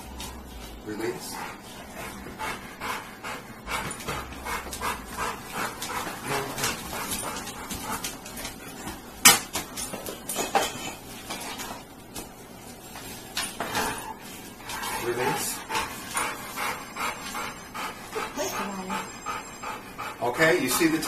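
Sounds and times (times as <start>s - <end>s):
dog panting: 0.0s - 9.2s, 13.6s - 21.0s.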